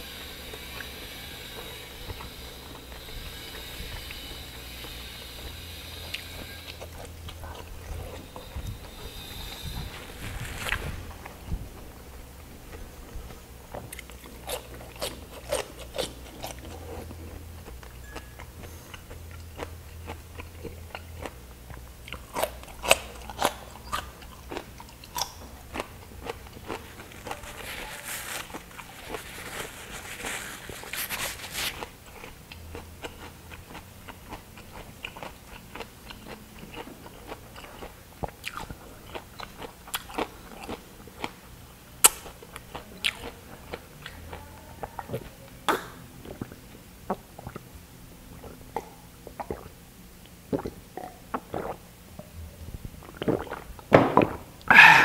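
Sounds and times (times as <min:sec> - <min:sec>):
wet chewing: 0:00.5 - 0:11.4, 0:12.6 - 0:41.4, 0:48.4 - 0:51.8, 0:53.0 - 0:53.9
paper napkin rustling: 0:09.8 - 0:11.5, 0:26.8 - 0:32.0
mouth clicks: 0:54.7 - 0:55.0.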